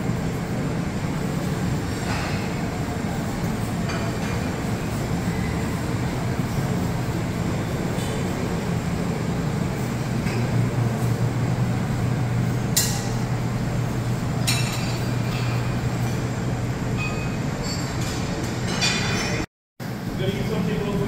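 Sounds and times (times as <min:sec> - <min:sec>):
machinery and ventilation hum: 0:00.0 - 0:21.0.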